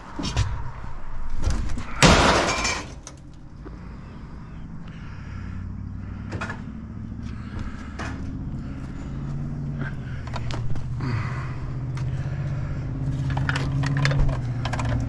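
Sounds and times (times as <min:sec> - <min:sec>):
loud clattering crash: 0:01.8 - 0:03.1
vehicle engine running: 0:03.0 - 0:15.0.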